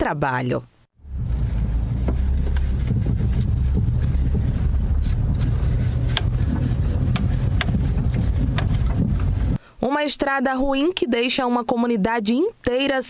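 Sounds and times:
car engine and road rumble: 0:01.0 - 0:09.6
sharp clicks and knocks: 0:01.6 - 0:09.6.

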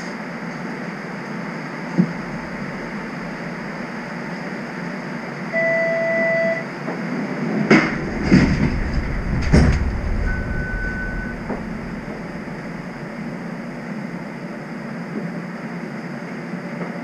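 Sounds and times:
streetcar low hum: 0:00.0 - 0:17.0
steady beep: 0:05.5 - 0:06.6, 0:09.8 - 0:13.4
thump: 0:07.7 - 0:13.0.

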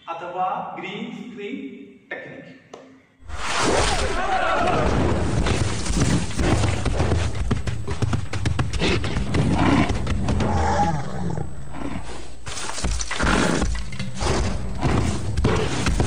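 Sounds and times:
animal roaring: 0:08.8 - 0:12.3, 0:13.1 - 0:16.0.

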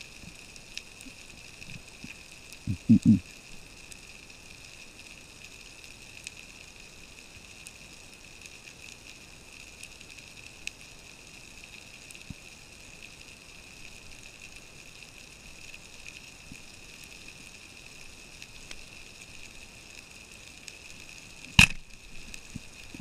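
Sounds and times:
faint high underwater hiss: 0:00.0 - 0:23.0
sharp clicks: 0:21.6 - 0:21.9.

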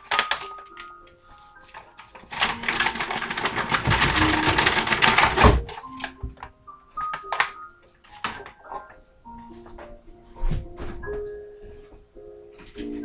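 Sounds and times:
plastic bag crinkling: 0:00.0 - 0:09.0
frozen berries rattling into glass jar: 0:02.0 - 0:06.1.

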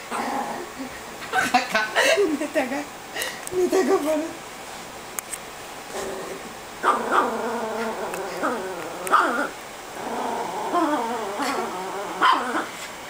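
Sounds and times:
small dog growling: 0:00.1 - 0:00.9, 0:05.9 - 0:12.8.

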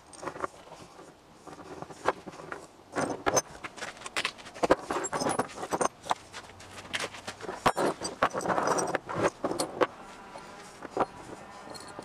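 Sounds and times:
steel chain clinking and rattling: 0:00.0 - 0:00.9, 0:01.5 - 0:12.0.

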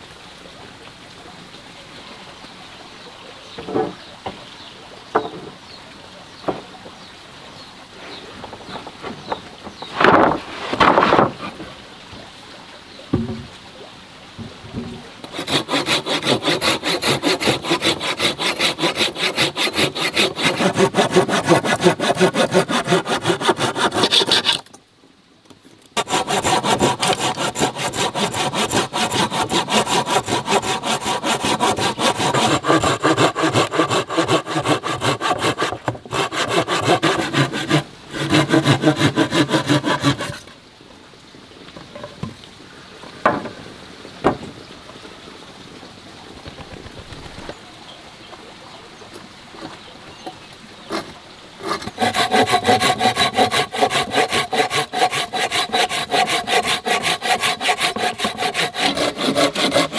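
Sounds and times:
hand saw cutting wood: 0:15.2 - 0:24.7, 0:26.0 - 0:40.5, 0:50.9 - 0:59.9.

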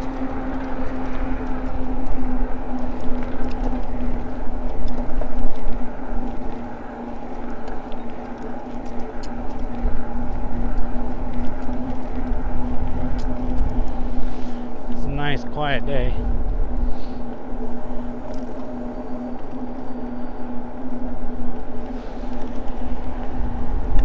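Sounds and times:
electric motor hum: 0:00.0 - 0:13.8, 0:16.9 - 0:19.4, 0:23.4 - 0:24.0.

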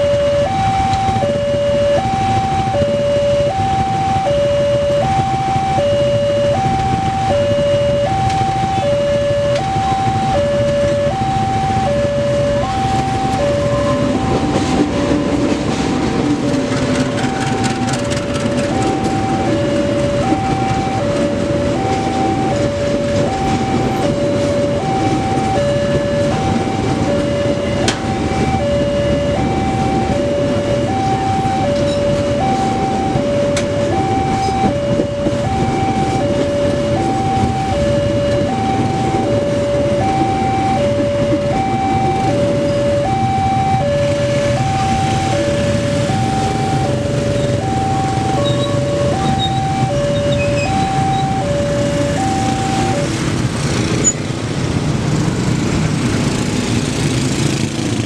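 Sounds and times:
level crossing two-tone alarm: 0:00.0 - 0:54.3
train wheels rumbling on rails: 0:00.0 - 0:58.0
rail joint clicks: 0:14.0 - 0:19.6, 0:27.8 - 0:28.2, 0:31.7 - 0:37.2.

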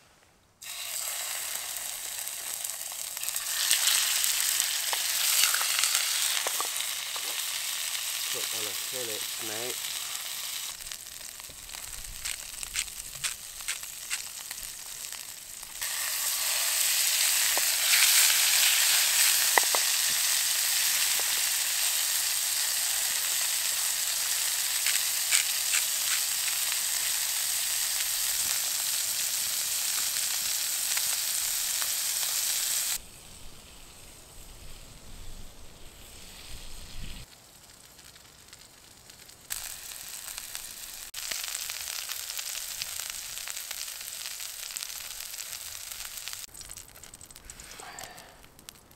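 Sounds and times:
steaks sizzling in a frying pan: 0:00.6 - 0:33.0, 0:38.0 - 0:47.0
small oil pops: 0:11.4 - 0:14.3.

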